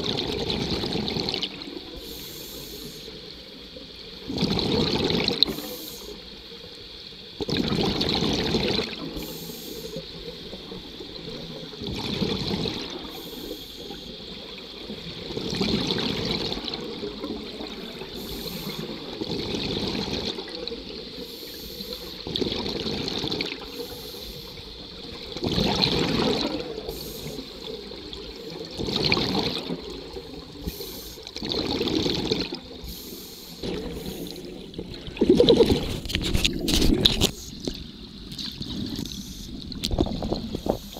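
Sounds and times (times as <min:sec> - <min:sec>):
exhaled air bubbling underwater: 0:00.0 - 0:40.9
regulator hiss: 0:01.7 - 0:04.4, 0:05.4 - 0:07.4, 0:08.6 - 0:11.9, 0:12.7 - 0:15.4, 0:16.3 - 0:19.2, 0:19.9 - 0:22.3, 0:23.6 - 0:25.3, 0:26.2 - 0:28.8, 0:29.6 - 0:31.4, 0:32.5 - 0:34.8, 0:37.3 - 0:38.0, 0:39.0 - 0:39.7, 0:40.4 - 0:40.9.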